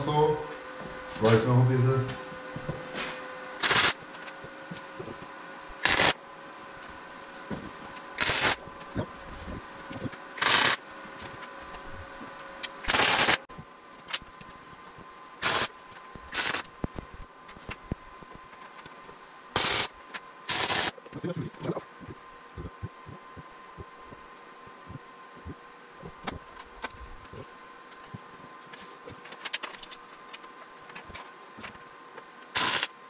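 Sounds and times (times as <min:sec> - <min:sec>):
faint steady hum: 0:00.0 - 0:33.0
welding arc crackling: 0:03.6 - 0:04.1, 0:05.8 - 0:06.2, 0:08.2 - 0:12.0, 0:12.6 - 0:13.5, 0:15.4 - 0:18.4, 0:19.6 - 0:21.3, 0:32.5 - 0:33.0.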